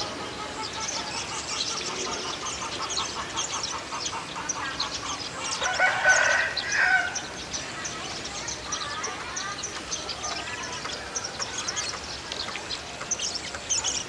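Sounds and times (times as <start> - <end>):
small birds chirping: 0.0 - 14.0
rooster crowing: 5.6 - 7.2.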